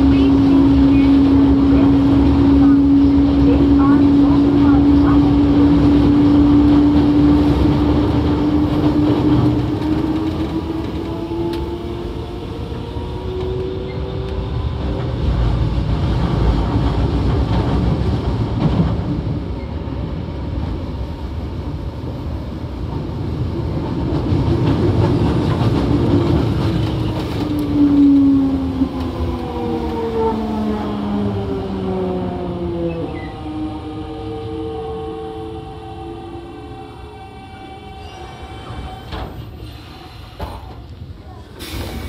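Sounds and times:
train running gear rumble: 0.0 - 42.0.

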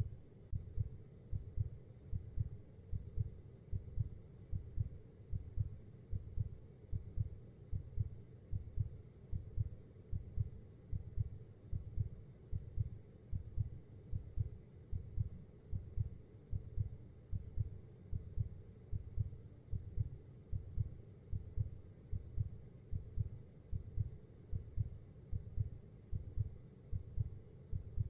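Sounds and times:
heartbeat thumps: 0.5 - 28.0.

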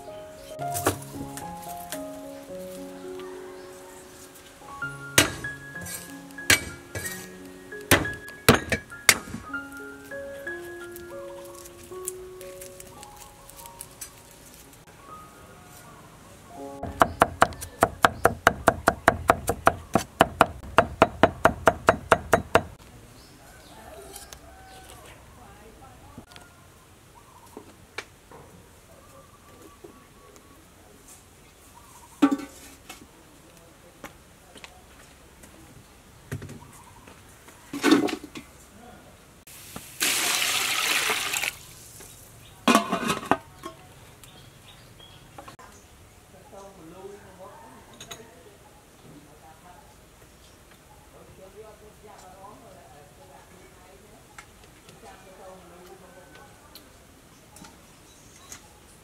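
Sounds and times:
knife chopping on wooden board: 5.2 - 5.5, 16.8 - 22.8
metal lid clattering: 5.2 - 7.3, 42.7 - 43.4
water pouring into pot: 40.0 - 41.6.

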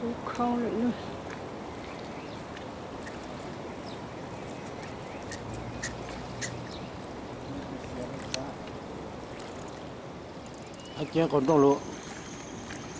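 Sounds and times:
fishing tackle clicks: 3.0 - 7.2, 9.4 - 11.0.

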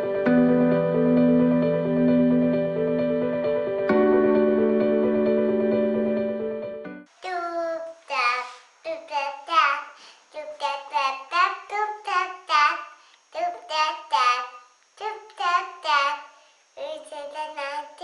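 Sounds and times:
toddler girl singing: 7.2 - 18.0.

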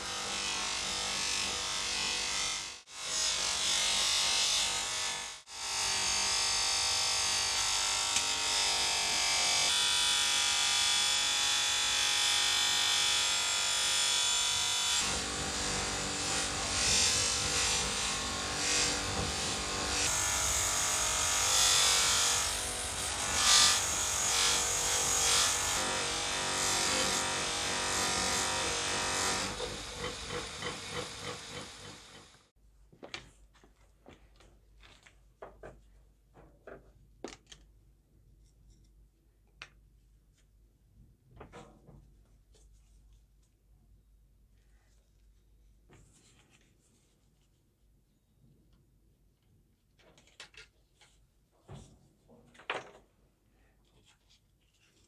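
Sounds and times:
bench grinder motor hum: 0.0 - 32.5
grinder winding down: 15.0 - 32.5
metal rubbing on grinding wheel: 16.6 - 32.4.

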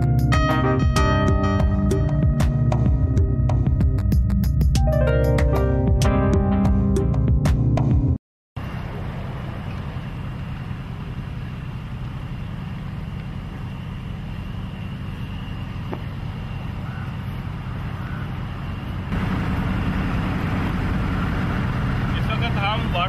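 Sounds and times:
low outdoor rumble: 8.6 - 23.0.

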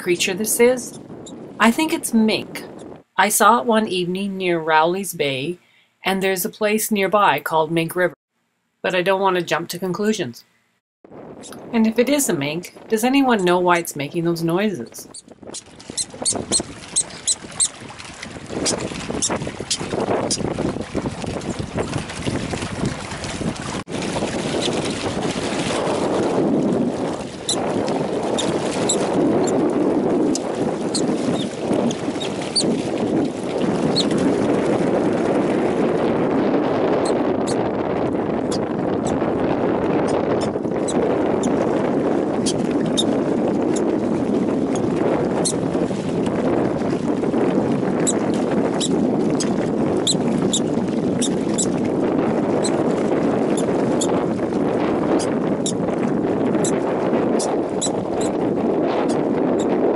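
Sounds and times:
wind on microphone: 0.0 - 8.2, 11.0 - 59.9
lake water lapping on rocks: 15.3 - 35.9, 40.4 - 55.3.

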